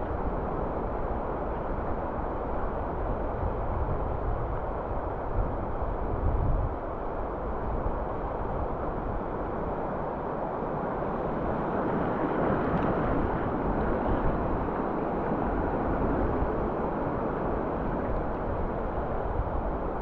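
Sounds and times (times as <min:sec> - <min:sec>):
wind buffeting microphone: 0:00.0 - 0:09.6, 0:10.8 - 0:20.0
churning water rushing: 0:07.3 - 0:20.0.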